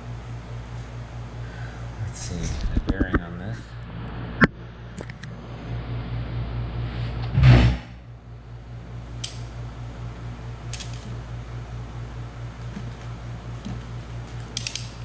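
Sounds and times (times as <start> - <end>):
steady low hum: 0.0 - 15.0
metal thump: 7.3 - 8.0.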